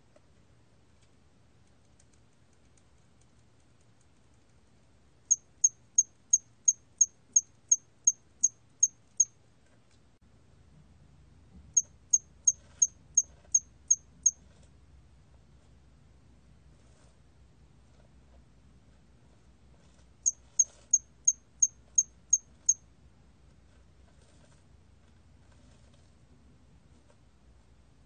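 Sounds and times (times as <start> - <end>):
cricket chirping: 5.3 - 9.3.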